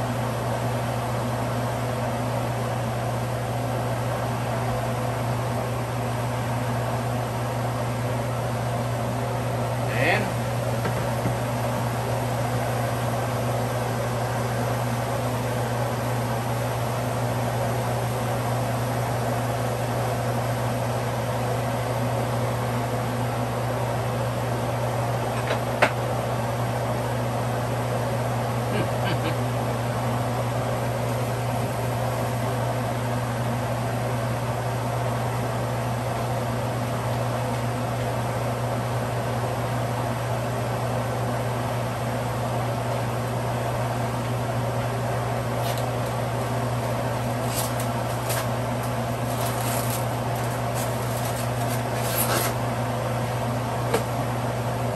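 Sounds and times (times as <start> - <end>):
steady mechanical hum: 0.0 - 54.9
plastic rustles and clicks: 47.3 - 52.6.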